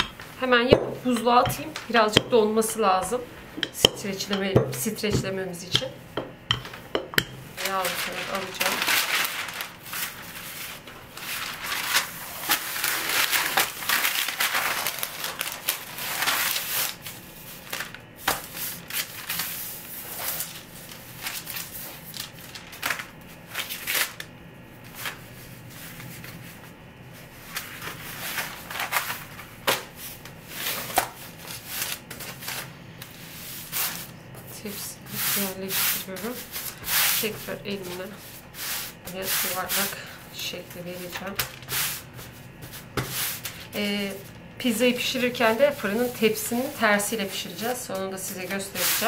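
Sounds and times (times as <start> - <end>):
parchment paper rustling: 0.0 - 24.2, 24.8 - 40.2, 40.8 - 49.0.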